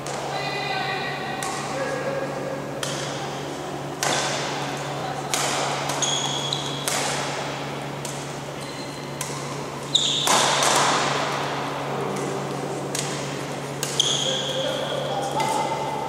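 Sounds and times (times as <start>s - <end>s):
rackets striking shuttlecock: 1.3s - 1.8s, 2.7s - 3.3s, 3.9s - 15.9s
shoes squeaking on floor: 6.0s - 6.8s, 8.6s - 9.2s, 9.8s - 10.4s, 13.9s - 15.4s.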